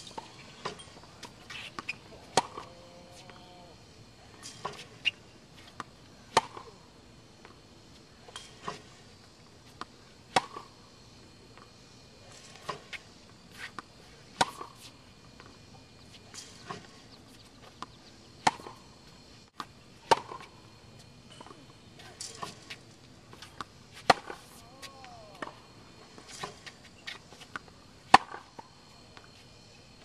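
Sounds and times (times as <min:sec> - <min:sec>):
racket striking tennis balls: 0:00.0 - 0:03.5, 0:04.3 - 0:06.8, 0:09.7 - 0:10.8, 0:12.3 - 0:18.9, 0:19.6 - 0:28.6.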